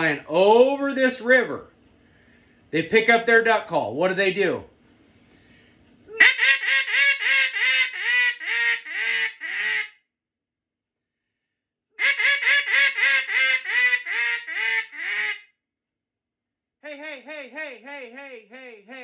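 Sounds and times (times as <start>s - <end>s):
duck call quacks: 6.1s - 10.0s, 12.0s - 15.5s.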